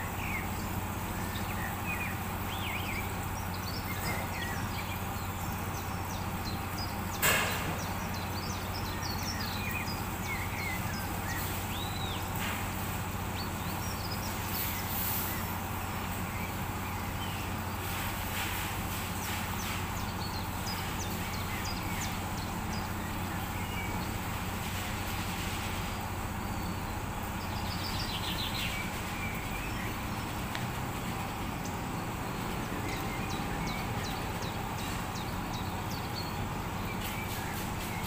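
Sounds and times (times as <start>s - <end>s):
low cooking rumble: 0.0s - 38.0s
light ticks: 30.4s - 30.8s.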